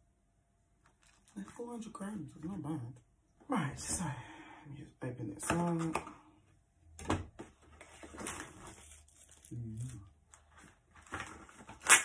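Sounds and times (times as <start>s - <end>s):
cardboard flap tearing: 11.0s - 12.0s.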